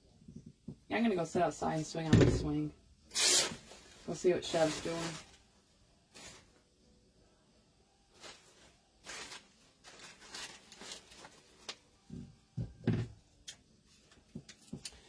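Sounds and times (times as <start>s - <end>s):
fabric and ribbon rustling: 3.2s - 6.7s, 8.1s - 12.1s.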